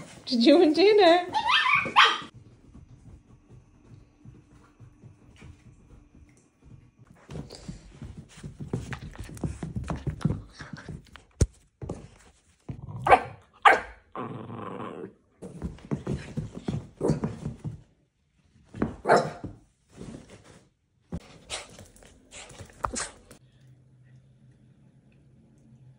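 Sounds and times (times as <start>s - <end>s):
scuffling: 0.0s - 12.8s, 15.4s - 17.9s
dog barking: 1.4s - 2.3s, 13.0s - 14.0s, 19.0s - 19.4s
dog growling: 14.1s - 15.2s.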